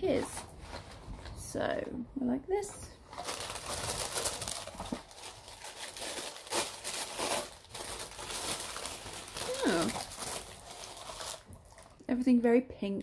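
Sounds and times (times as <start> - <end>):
paper packaging rustling: 0.0 - 1.4, 3.0 - 12.0.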